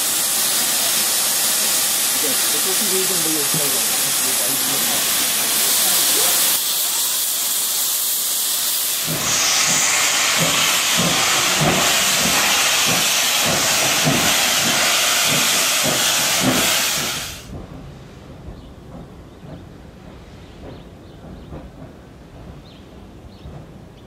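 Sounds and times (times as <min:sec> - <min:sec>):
steam locomotive hissing: 0:00.0 - 0:17.6
steam locomotive chuffing: 0:00.0 - 0:24.0.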